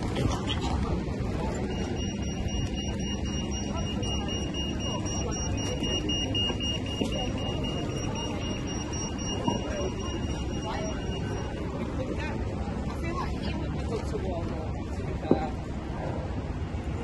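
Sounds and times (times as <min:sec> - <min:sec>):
city traffic: 0:00.0 - 0:17.0
pedestrian crossing signal tone: 0:01.3 - 0:12.2.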